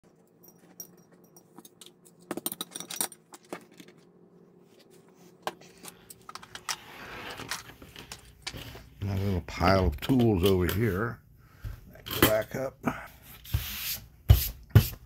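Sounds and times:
plastic parts clicking and clattering: 1.6 - 4.0, 5.5 - 8.7.

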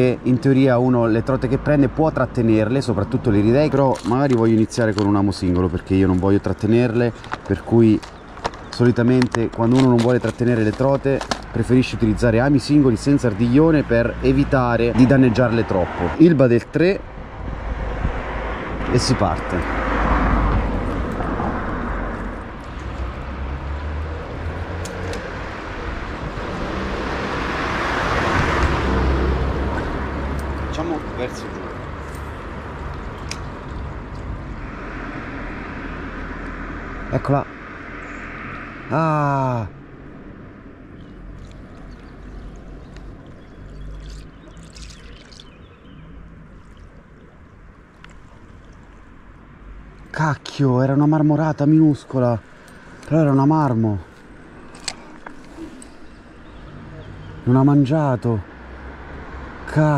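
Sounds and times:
road traffic rumbling: 0.0 - 59.9
vehicle passing: 0.9 - 59.9
water rushing down a channel: 41.3 - 45.7
faint short splashes: 41.4 - 45.6.

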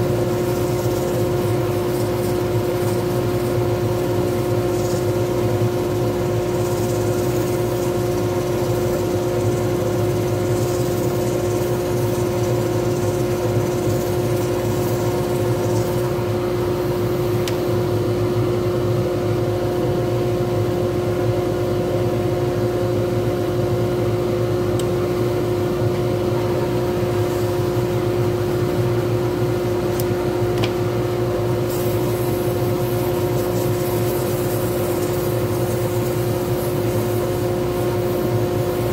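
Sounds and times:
wood lathe humming: 0.0 - 16.4.

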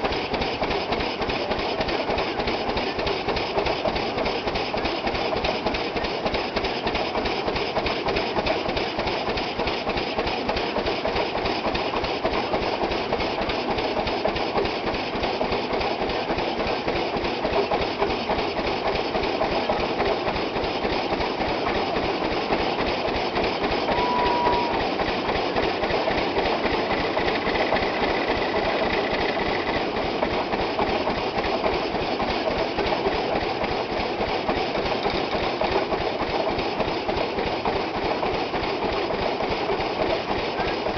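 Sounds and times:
threshing machine clattering: 0.0 - 40.9.

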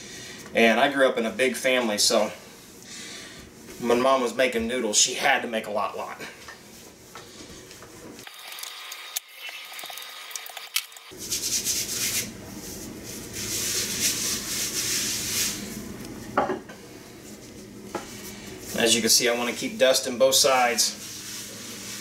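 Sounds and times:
dough rubbing on countertop: 11.1 - 15.9, 17.1 - 22.0.

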